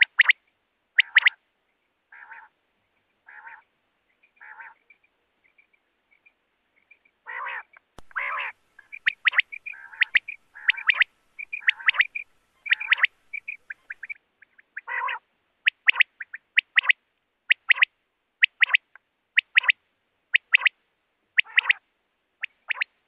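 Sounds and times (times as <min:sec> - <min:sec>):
quail calling: 0:00.0 - 0:00.4, 0:01.0 - 0:01.4, 0:02.1 - 0:02.6, 0:03.3 - 0:03.7, 0:04.3 - 0:04.9, 0:07.3 - 0:20.7, 0:21.4 - 0:21.8, 0:22.4 - 0:23.0.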